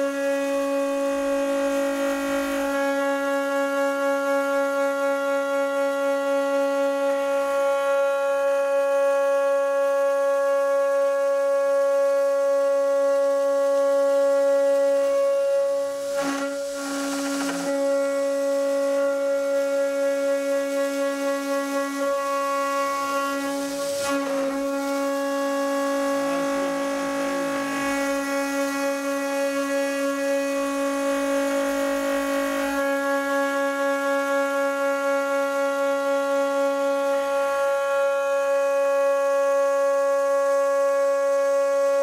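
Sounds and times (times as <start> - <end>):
milling spindle whine: 13.5 - 34.3.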